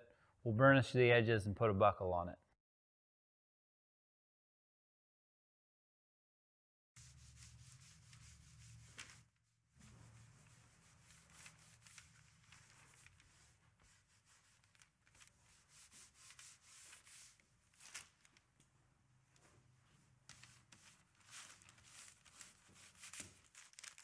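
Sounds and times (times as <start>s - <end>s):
scratchy rubbing on leather: 7.0s - 14.8s.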